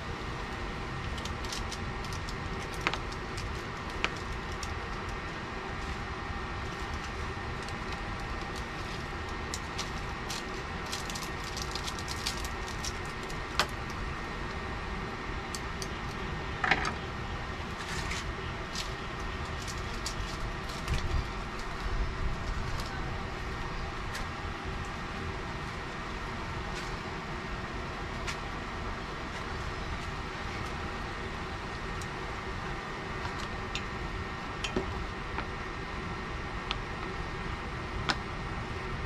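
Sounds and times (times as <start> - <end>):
steady low rumble: 0.0 - 39.0
packets crinkling: 6.7 - 13.7.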